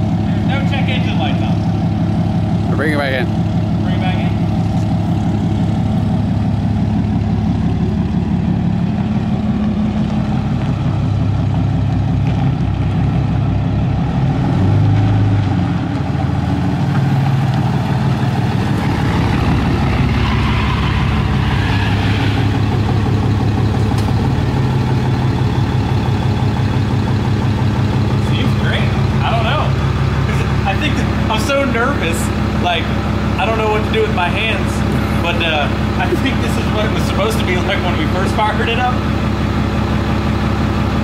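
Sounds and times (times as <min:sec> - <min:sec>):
diesel engine idling: 0:00.0 - 0:41.0.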